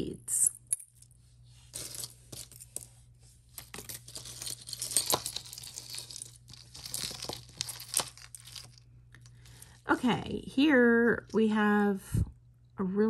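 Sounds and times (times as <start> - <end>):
packaging crinkling and rustling: 4.1 - 8.8.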